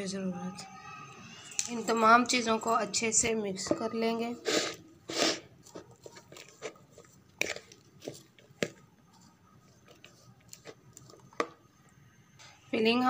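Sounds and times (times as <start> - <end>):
spoon stirring mash in bowl: 5.6 - 11.6.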